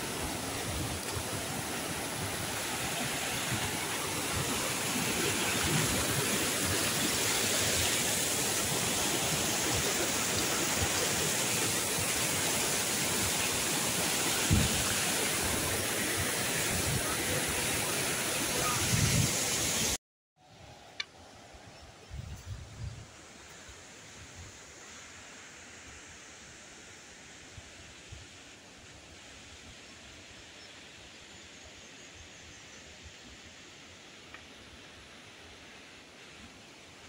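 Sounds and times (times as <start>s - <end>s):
stream rushing over boulders: 0.0s - 20.0s.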